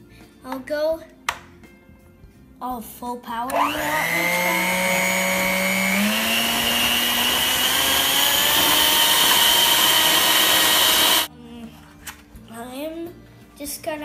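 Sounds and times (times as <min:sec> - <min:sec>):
electric mixer motor whine: 0:03.5 - 0:11.3.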